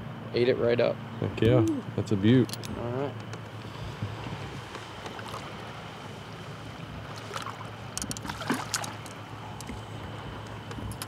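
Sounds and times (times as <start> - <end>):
steady low hum: 0.0 - 11.0
water splashing: 3.9 - 9.9.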